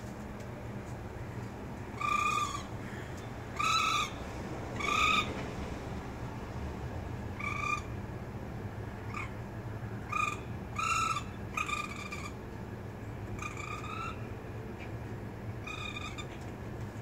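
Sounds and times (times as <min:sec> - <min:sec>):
baby raccoon crying: 0:02.0 - 0:02.7, 0:03.6 - 0:04.1.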